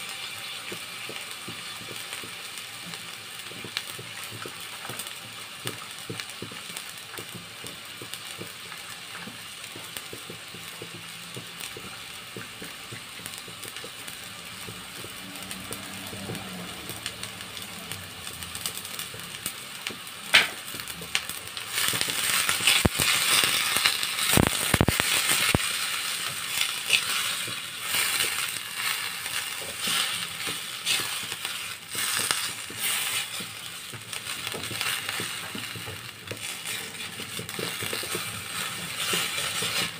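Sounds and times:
vegetables sizzling in a wok: 0.0 - 39.9
spatula scraping a pan: 21.7 - 39.9.

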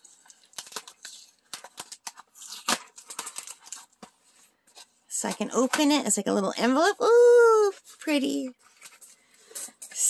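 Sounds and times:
tape peeling off cardboard: 0.3 - 3.9.

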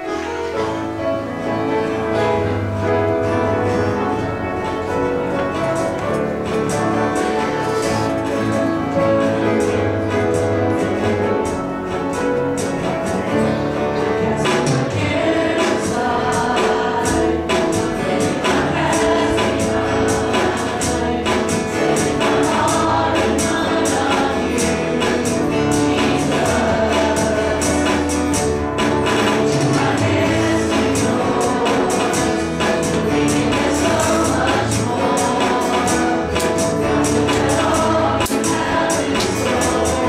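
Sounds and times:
guitar: 0.0 - 40.0
worship band playing: 0.0 - 40.0
steady drum beat: 5.5 - 40.0
singing: 14.4 - 28.2, 29.3 - 40.0.

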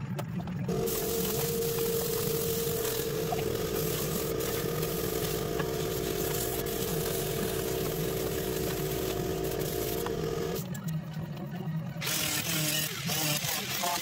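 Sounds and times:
machine hum: 0.0 - 13.5
spray gun hissing on metal: 0.7 - 10.6.

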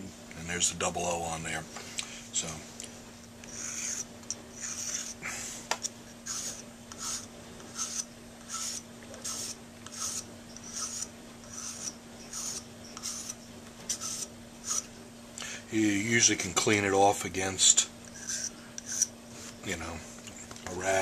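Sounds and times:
file rasping on acrylic: 3.4 - 5.2, 6.2 - 14.9, 18.1 - 19.1.

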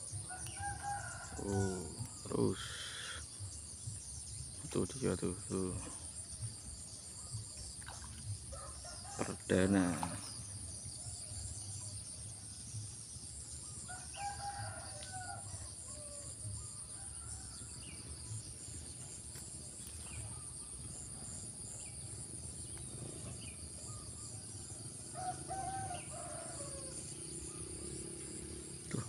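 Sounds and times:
rooster crowing: 25.1 - 27.0.

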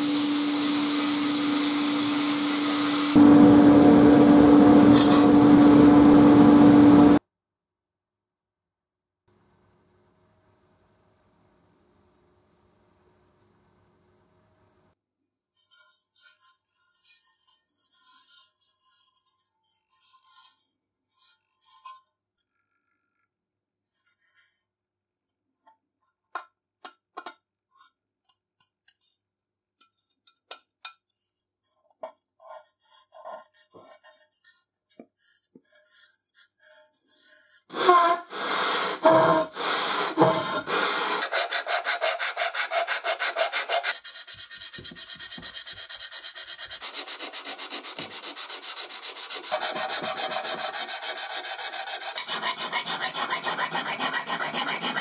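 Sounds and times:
metal rasping on sandpaper: 32.5 - 55.0.

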